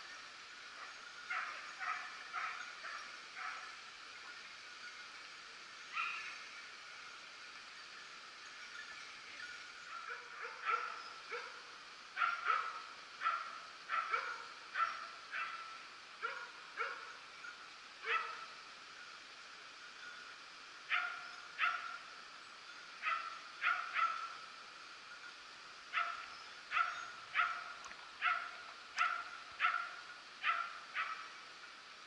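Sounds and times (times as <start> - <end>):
hunting dogs barking: 0.8 - 3.8, 9.9 - 17.2, 18.0 - 18.5, 20.9 - 22.0, 23.0 - 24.4, 25.9 - 31.4.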